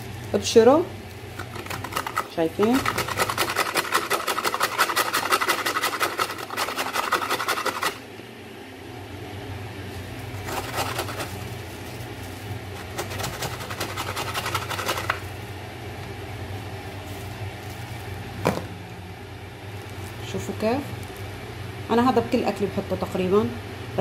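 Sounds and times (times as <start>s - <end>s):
root grated on metal grater: 1.4s - 8.0s, 10.4s - 11.4s, 12.8s - 15.3s.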